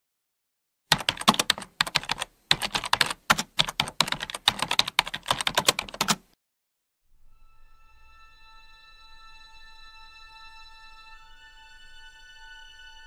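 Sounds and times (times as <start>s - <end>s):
keyboard typing: 0.9s - 6.4s.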